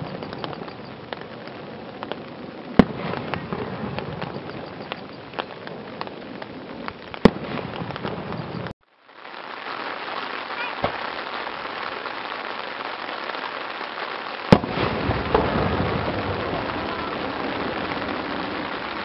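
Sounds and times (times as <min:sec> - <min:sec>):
firework booms: 0:00.0 - 0:08.7, 0:09.6 - 0:19.0
steady hiss: 0:00.0 - 0:19.0
smaller pops: 0:10.7 - 0:12.0.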